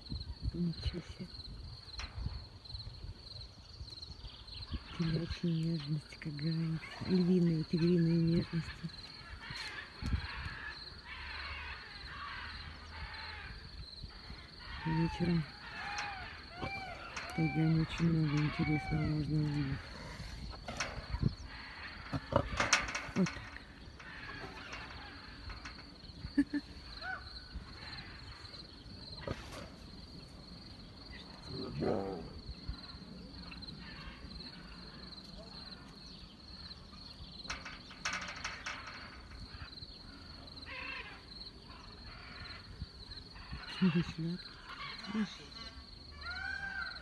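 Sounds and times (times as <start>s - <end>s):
crickets chirping: 0.0s - 47.0s
big cats growling: 15.1s - 25.4s, 29.2s - 29.9s, 31.2s - 32.5s
tigers snarling and hissing: 15.2s - 25.8s, 29.1s - 30.4s, 31.2s - 32.4s.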